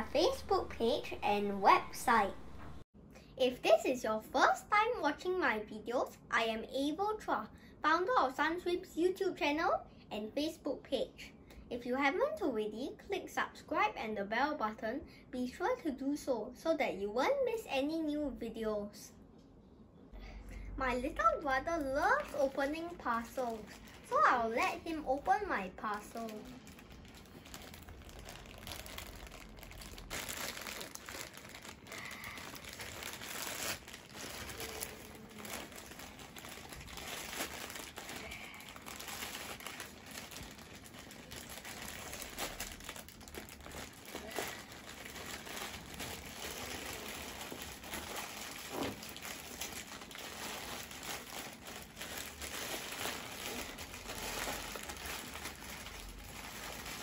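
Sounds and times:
plastic bag crinkling and tearing: 0:00.0 - 0:02.8, 0:21.1 - 0:57.0.

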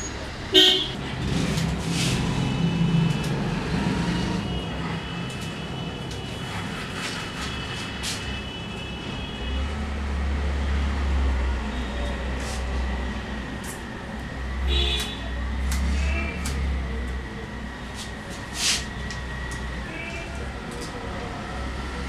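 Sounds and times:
vehicle engine rumble: 0:00.0 - 0:08.6
street traffic noise: 0:00.0 - 0:22.0.

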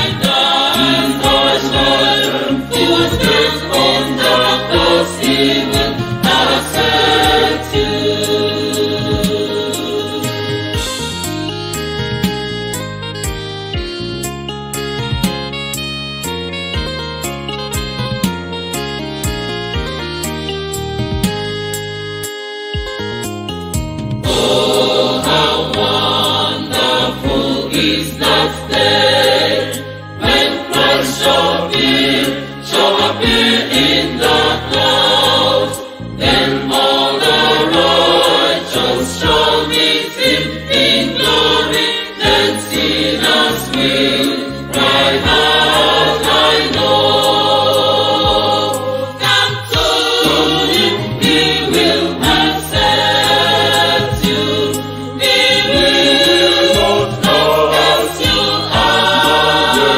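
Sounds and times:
choir singing a hymn: 0:00.0 - 0:11.0, 0:24.3 - 0:59.9.

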